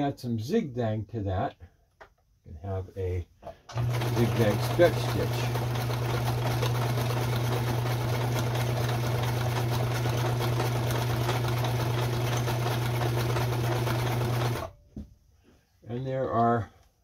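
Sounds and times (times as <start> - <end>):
sewing machine running: 3.7 - 14.7.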